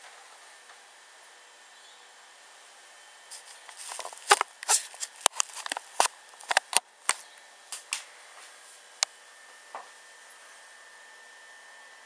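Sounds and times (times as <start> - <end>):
sharp clicks and taps: 3.4 - 7.2.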